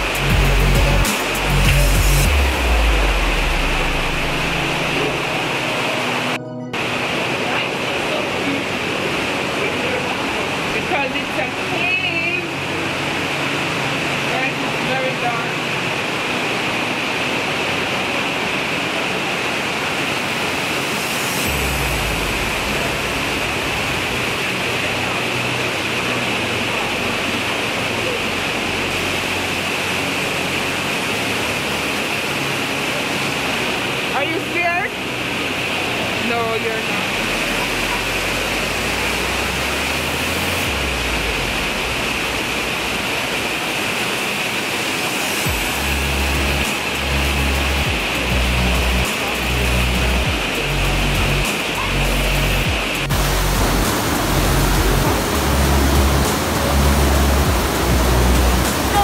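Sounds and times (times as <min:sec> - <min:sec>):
water rushing: 0:00.0 - 0:59.0
deep rumble: 0:01.6 - 0:06.3, 0:45.5 - 0:58.9.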